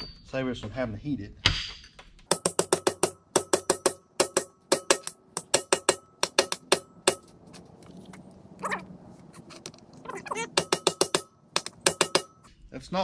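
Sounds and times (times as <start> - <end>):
rapid metal-on-metal blows: 1.5 - 7.4, 10.4 - 12.5.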